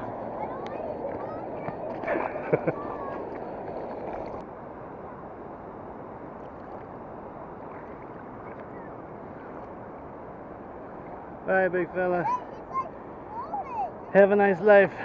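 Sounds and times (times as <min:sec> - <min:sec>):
shallow river water sloshing: 0:00.0 - 0:04.5, 0:06.0 - 0:13.3
moving water: 0:00.0 - 0:15.0.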